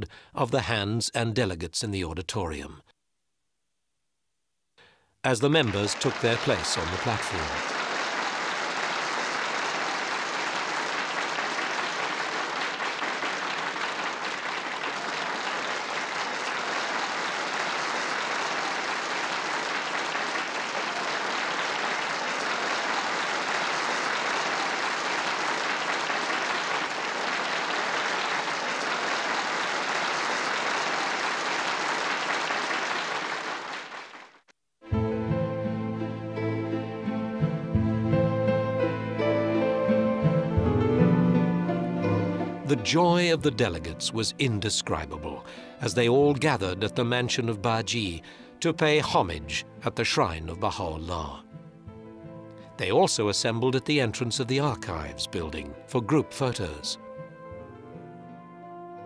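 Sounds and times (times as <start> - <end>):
audience applauding: 5.3 - 34.4.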